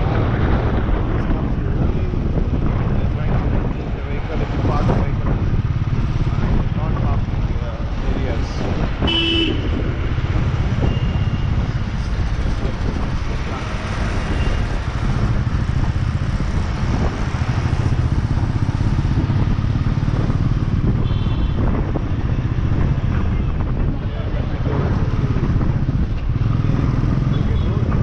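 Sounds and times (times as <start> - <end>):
road and traffic noise: 0.0 - 28.0
wind rumble on microphone: 0.0 - 28.0
vehicle horn toot: 9.0 - 9.8, 21.0 - 21.6.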